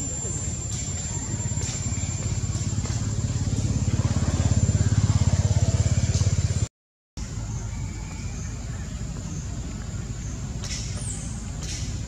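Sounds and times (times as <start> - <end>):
thin steady high tone: 0.0 - 5.8
small engine running: 0.0 - 6.7.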